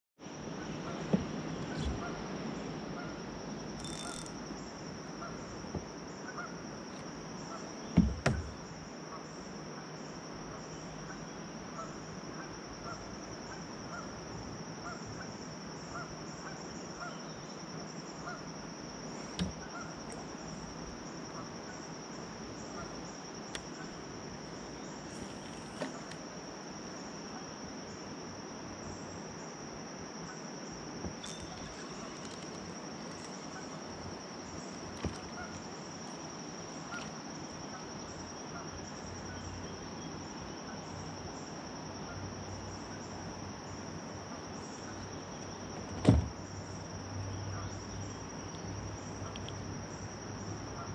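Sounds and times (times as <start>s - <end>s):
insects droning: 0.2s - 50.9s
sudden knocks: 8.0s - 8.6s, 45.8s - 46.4s.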